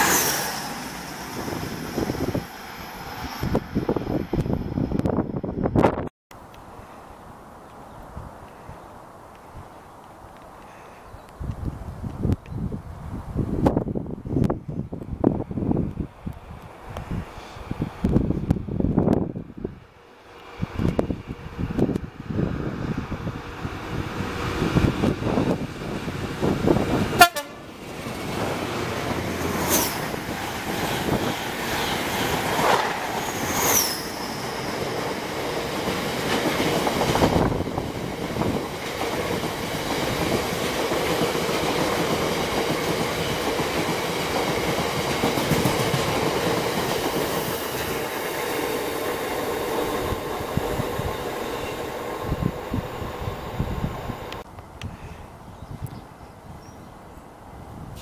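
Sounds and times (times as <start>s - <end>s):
train wheel rumble and clickety-clack: 20.3s - 54.5s
high wheel squeals: 33.2s - 34.9s.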